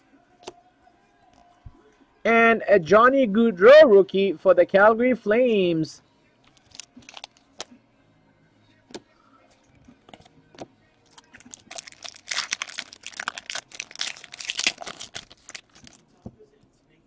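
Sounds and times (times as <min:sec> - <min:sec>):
wrappers crinkling and tearing: 0:06.5 - 0:07.7, 0:11.1 - 0:16.1.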